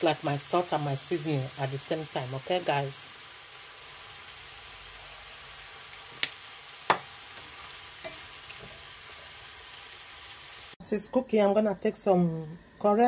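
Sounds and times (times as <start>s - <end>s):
vegetables sizzling in frying pan: 0.0s - 10.8s
wooden spatula knocking on pan: 6.9s - 7.1s.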